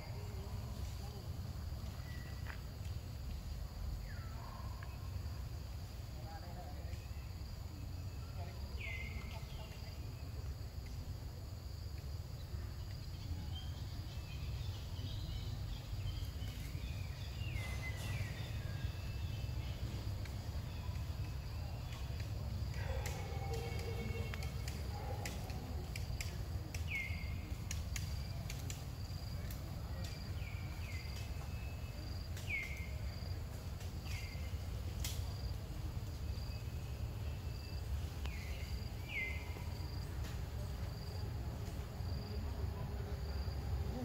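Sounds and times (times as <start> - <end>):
insect chirping: 0.0 - 44.0.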